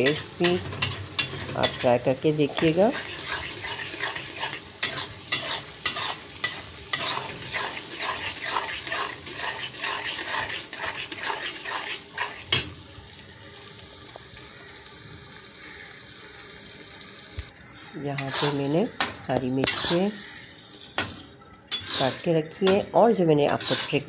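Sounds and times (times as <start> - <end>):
spatula scraping and knocking pan: 0.0 - 1.9, 2.5 - 12.7, 18.2 - 20.0, 21.0 - 22.9, 23.5 - 24.0
food sizzling in oil: 0.0 - 24.0.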